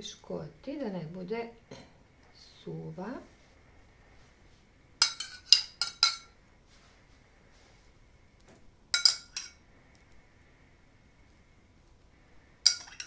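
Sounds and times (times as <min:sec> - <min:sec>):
teaspoon clinking against glass: 0:09.0 - 0:09.6, 0:12.7 - 0:13.0.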